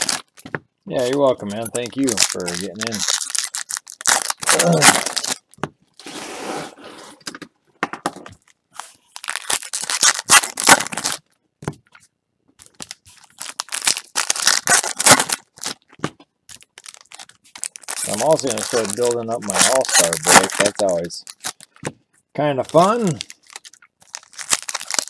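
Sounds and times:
foil wrappers tearing and crinkling: 0:00.0 - 0:00.4, 0:01.0 - 0:05.5, 0:08.8 - 0:11.2, 0:12.6 - 0:15.9, 0:16.5 - 0:21.8, 0:22.7 - 0:25.0.

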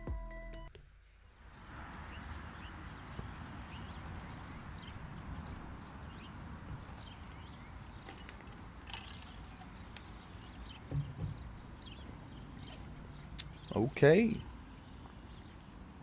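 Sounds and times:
soft thumps: 0:10.8 - 0:11.6.

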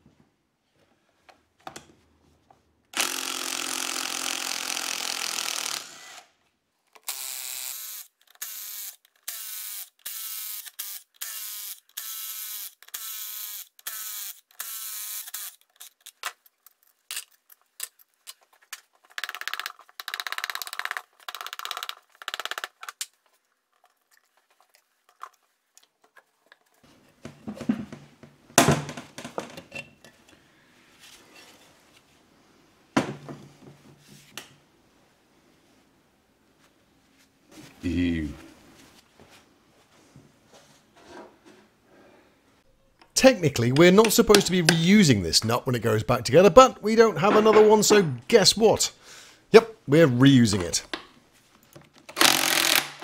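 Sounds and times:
impact wrench hammering: 0:52.2 - 0:53.0.

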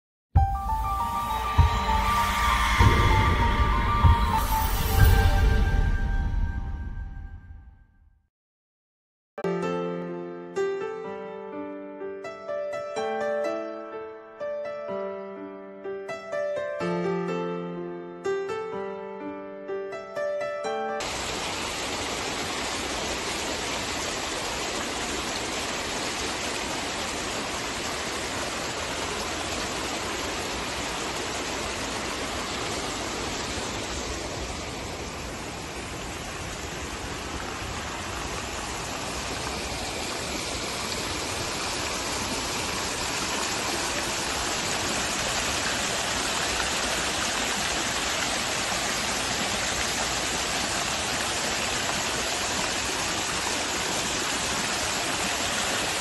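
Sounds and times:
fountain water splashing: 0:21.0 - 0:56.0.

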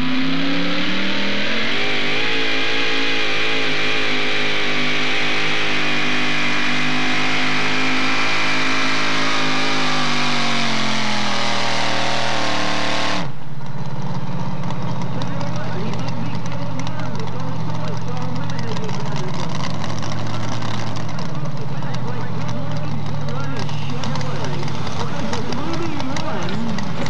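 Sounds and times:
truck engine at high revs: 0:00.0 - 0:27.0
engine rough idle: 0:13.2 - 0:27.0.

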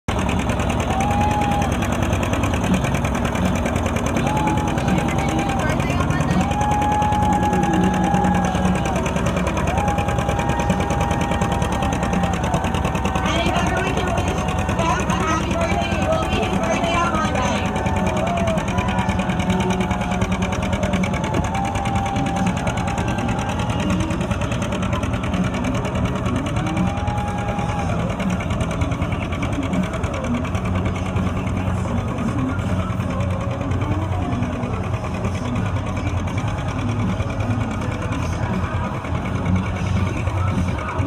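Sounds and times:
tractor engine popping under load: 0:00.1 - 0:41.0.

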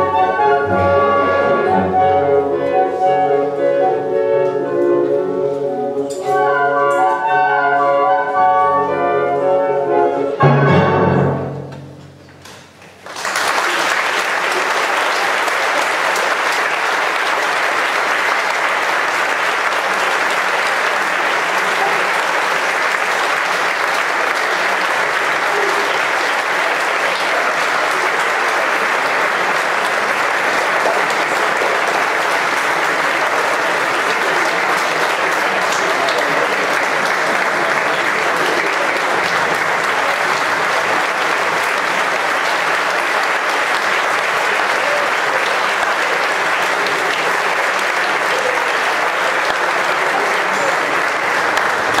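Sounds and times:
audience applauding: 0:12.4 - 0:52.0.

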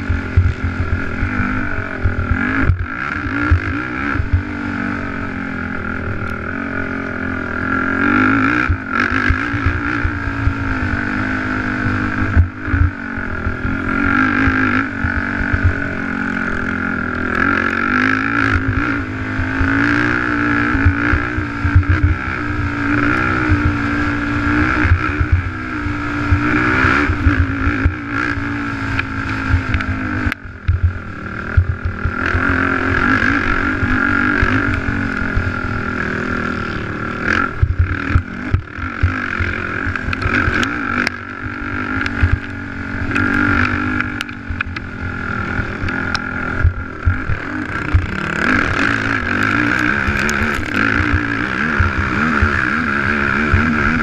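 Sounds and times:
quad engine racing: 0:00.0 - 0:54.0
low knocks from rough track: 0:30.6 - 0:32.1.

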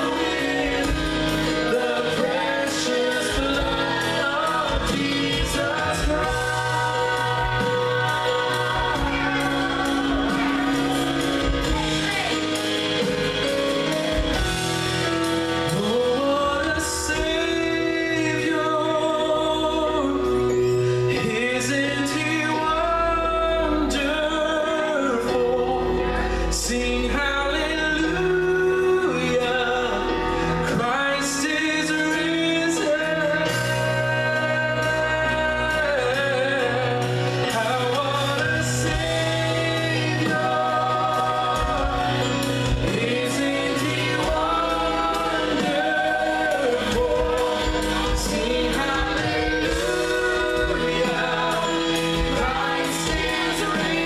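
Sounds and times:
man singing: 0:00.0 - 0:54.0
acoustic guitar strumming: 0:36.0 - 0:54.0.

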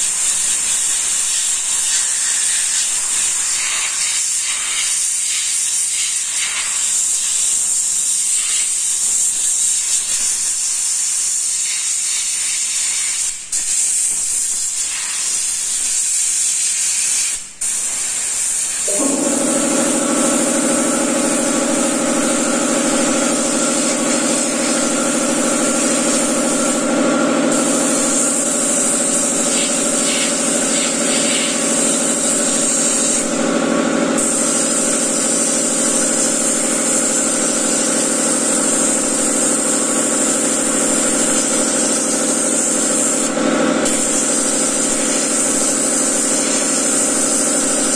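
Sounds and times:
airbrush spraying hiss: 0:00.0 - 0:47.9
air compressor motor humming: 0:18.7 - 0:47.9.

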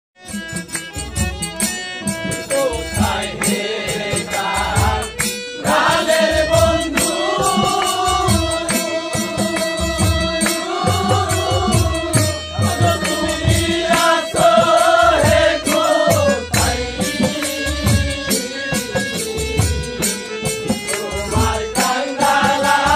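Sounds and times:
drum beats: 0:00.2 - 0:22.9
harmonium: 0:00.2 - 0:22.9
person singing: 0:02.4 - 0:19.7.

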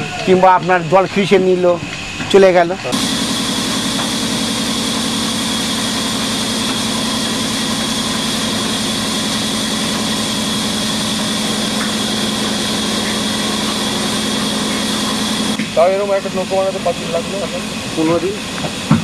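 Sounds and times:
engine running steadily: 0:00.0 - 0:19.0
strong hiss: 0:10.4 - 0:18.4.

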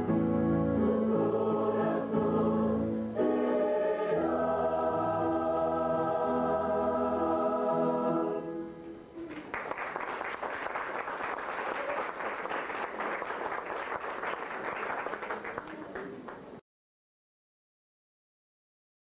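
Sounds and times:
mixed choir holding chord: 0:00.0 - 0:09.0
audience applauding: 0:09.2 - 0:16.6.

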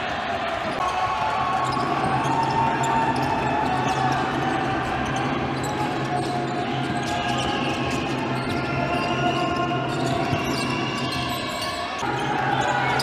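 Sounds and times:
hum of voices and shouts: 0:00.0 - 0:13.0
sneakers squeaking: 0:00.7 - 0:13.0.

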